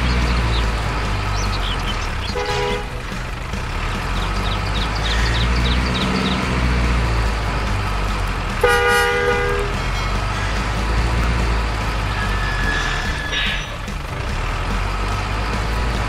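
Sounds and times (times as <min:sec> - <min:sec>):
truck engine droning: 0:00.0 - 0:16.0
truck horn toot: 0:02.0 - 0:03.3, 0:08.6 - 0:10.7, 0:12.0 - 0:13.9.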